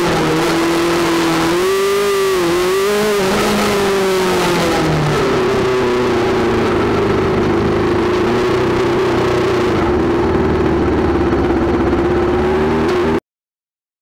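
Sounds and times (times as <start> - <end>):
race car engine at low revs: 0.0 - 13.2.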